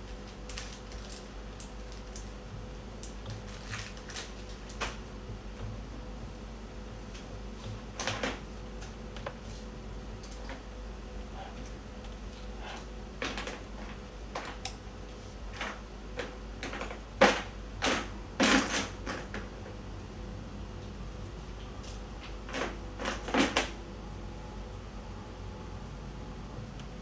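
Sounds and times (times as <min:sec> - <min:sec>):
faint steady hum: 0:00.0 - 0:27.0
clicks of test probes and wiring: 0:11.6 - 0:19.2.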